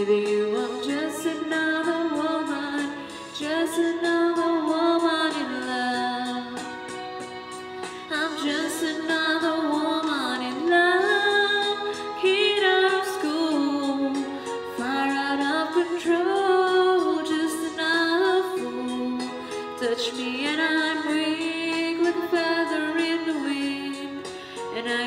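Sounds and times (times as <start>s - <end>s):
woman singing into microphone: 0.0s - 25.0s.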